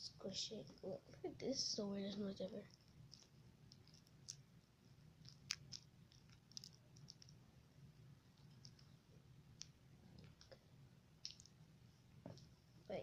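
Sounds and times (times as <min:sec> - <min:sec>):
slime squishing with clicks: 0:02.1 - 0:07.4, 0:08.3 - 0:10.6, 0:11.2 - 0:11.6.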